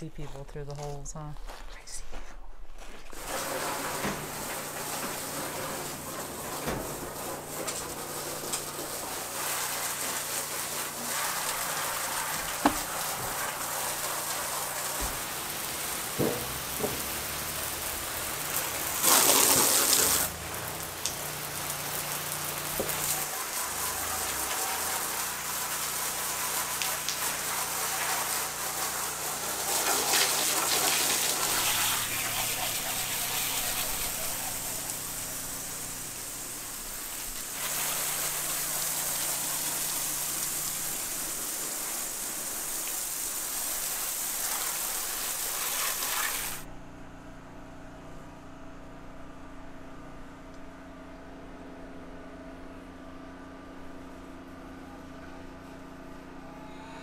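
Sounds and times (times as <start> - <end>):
water spraying from a hose: 3.1 - 46.7
generator running: 14.4 - 26.2, 28.4 - 42.4.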